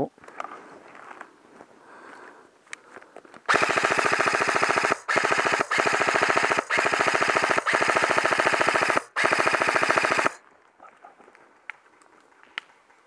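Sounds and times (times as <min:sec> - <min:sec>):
airsoft rifle firing bursts: 0:03.5 - 0:10.4.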